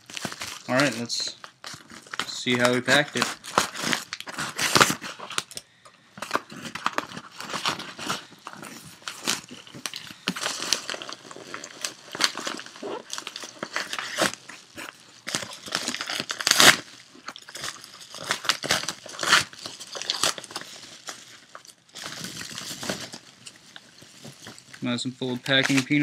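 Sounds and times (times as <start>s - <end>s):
plastic mailer crinkling: 0.0s - 5.6s, 6.2s - 26.0s.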